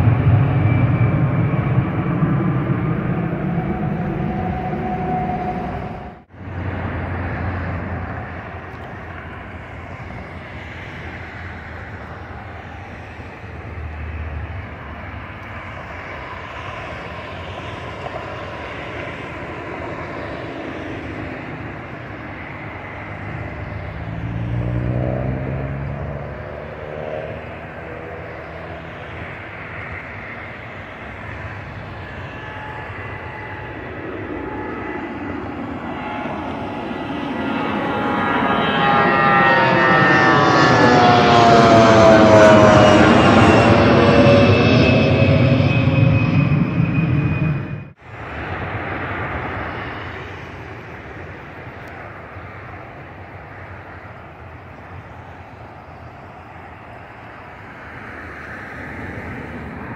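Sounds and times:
airliner engines rumbling overhead: 0.0s - 59.9s.

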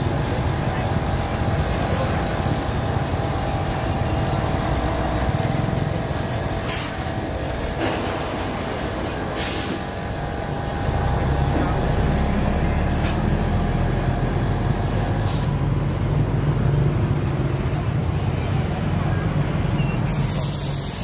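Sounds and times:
vehicle engines rumbling: 0.0s - 21.0s
short hisses: 9.4s - 10.0s.

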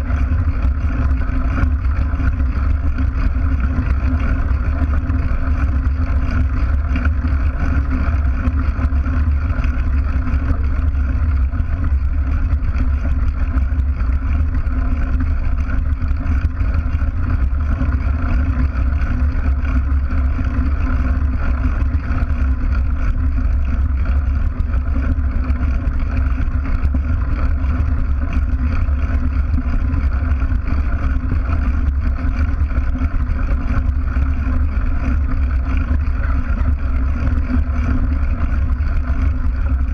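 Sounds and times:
bike tyres rolling on gravel: 0.0s - 39.9s
bike vibration rumble: 0.0s - 39.9s.

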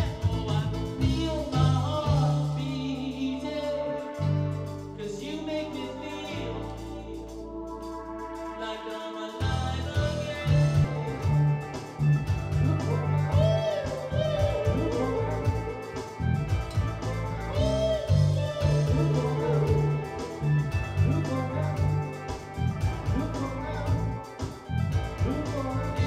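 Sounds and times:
bass guitar: 0.0s - 8.6s, 9.4s - 26.0s
keyboard: 0.0s - 26.0s
wavering held melody: 10.3s - 26.0s.

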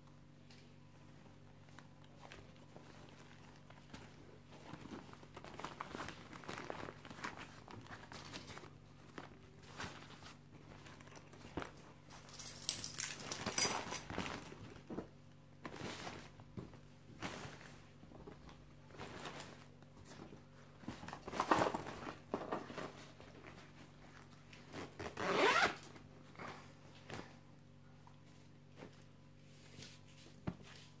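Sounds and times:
fabric rustling: 1.0s - 31.0s
zippers rasping open and shut: 25.1s - 25.9s.

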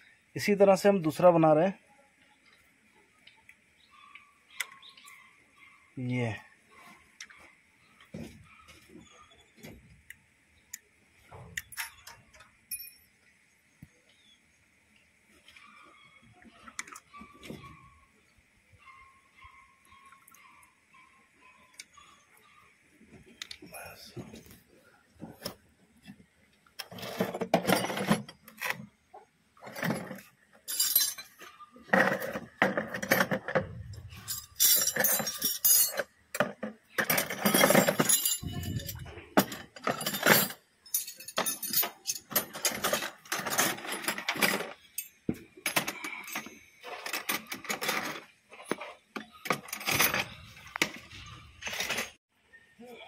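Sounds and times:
metallic clinks of hand tools: 12.7s - 13.2s, 34.2s - 36.1s, 37.0s - 48.2s.

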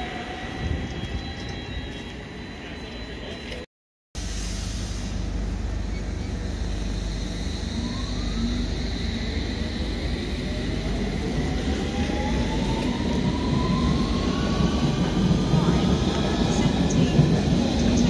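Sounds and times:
train pulling away: 4.2s - 18.0s
traction motor whine rising: 6.3s - 14.6s.

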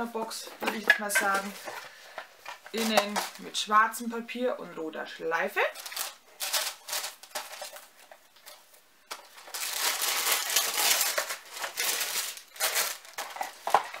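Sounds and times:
paper rustling and crinkling: 0.6s - 3.5s, 5.8s - 14.0s.

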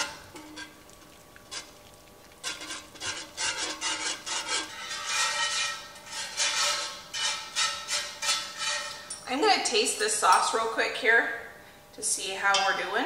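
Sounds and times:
wire whisk scraping a skillet: 0.0s - 9.2s.

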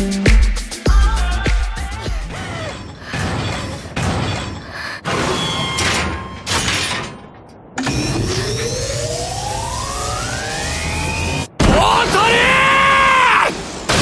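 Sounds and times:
rising electronic whine: 7.8s - 11.6s.

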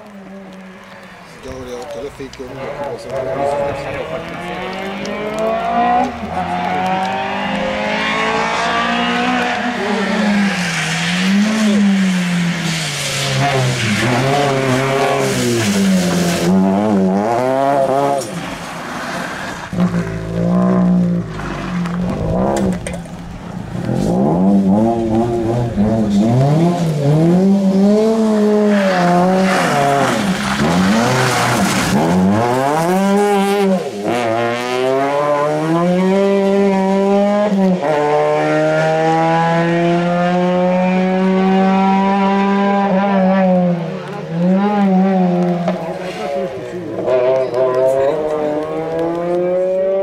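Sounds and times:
rally car engine revving: 1.4s - 50.0s.

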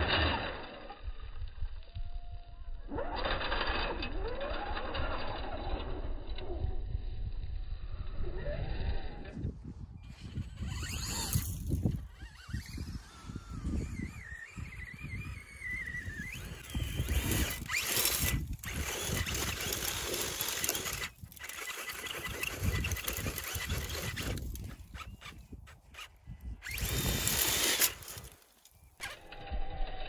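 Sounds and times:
thin wavering whine: 0.0s - 24.4s
wind buffeting microphone: 4.2s - 28.3s.

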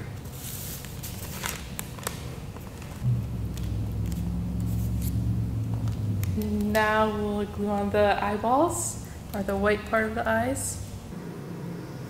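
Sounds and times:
paper rustling: 0.2s - 3.0s
low steady rumble: 3.0s - 12.0s.

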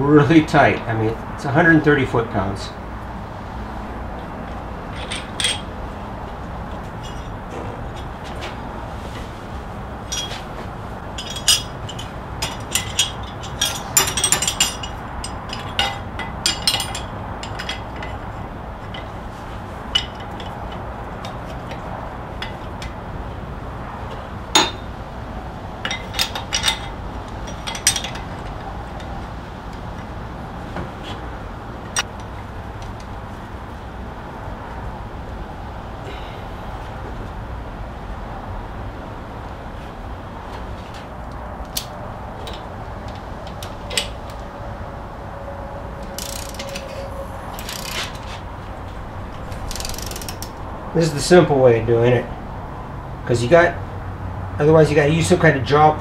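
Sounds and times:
low background noise: 0.0s - 56.0s
metal hand tools clinking: 4.9s - 5.7s, 10.1s - 10.4s, 11.2s - 18.2s, 25.8s - 28.5s, 46.0s - 48.4s, 49.0s - 51.2s.

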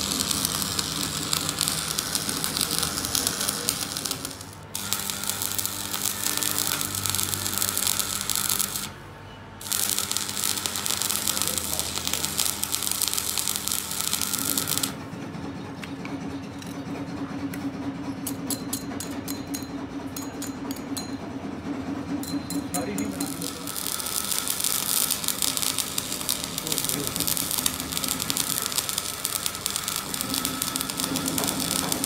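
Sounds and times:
welding arc crackling and sizzling: 0.0s - 9.0s, 9.6s - 15.0s, 22.8s - 32.0s.

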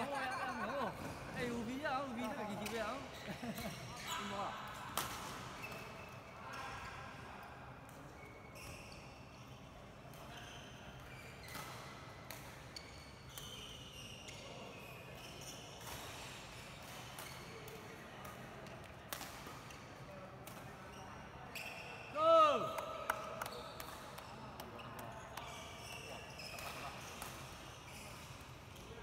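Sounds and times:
shoes squeaking on court floor: 0.0s - 4.7s, 5.3s - 6.8s, 8.1s - 9.7s, 10.3s - 17.7s, 20.8s - 22.2s, 23.4s - 29.0s.

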